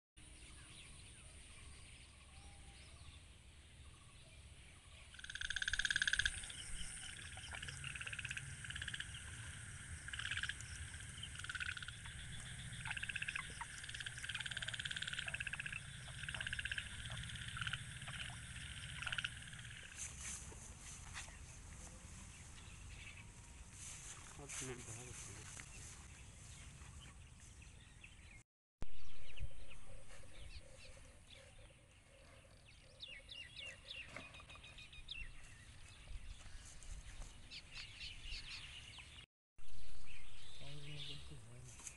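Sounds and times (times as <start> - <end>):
frogs calling: 5.1 - 20.1.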